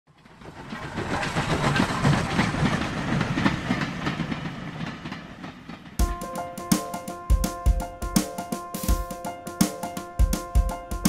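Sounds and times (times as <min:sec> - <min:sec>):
steam train chuffing: 0:00.2 - 0:08.4.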